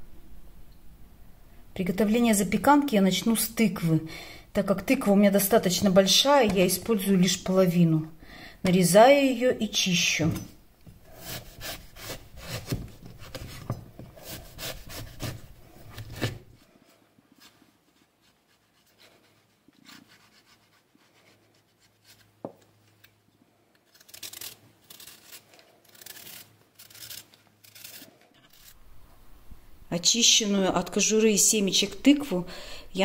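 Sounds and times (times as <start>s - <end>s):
knife scraping pumpkin: 11.0s - 16.5s, 18.2s - 22.4s, 23.9s - 28.8s.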